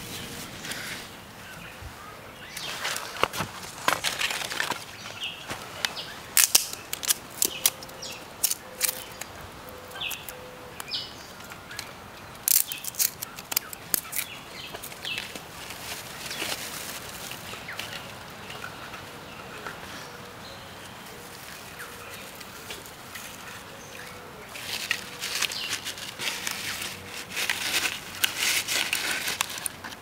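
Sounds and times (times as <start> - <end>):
dry bamboo cracking and splintering: 2.6 - 5.2, 6.3 - 9.3, 11.5 - 18.6, 24.6 - 30.0.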